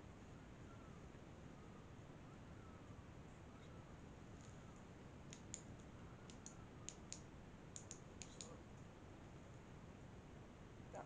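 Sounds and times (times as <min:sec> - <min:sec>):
faint sharp clicks: 0:05.3 - 0:08.9.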